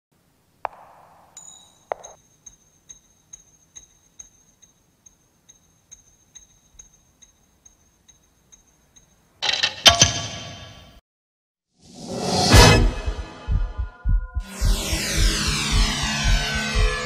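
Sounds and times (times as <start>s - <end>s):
sharp clink: 0.8s - 10.1s
faint ticking: 2.0s - 9.4s
high-pitched tone: 13.0s - 17.0s.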